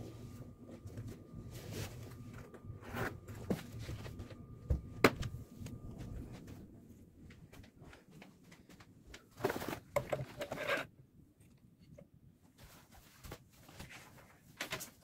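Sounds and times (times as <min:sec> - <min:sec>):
clothes rustling: 0:12.4 - 0:15.0.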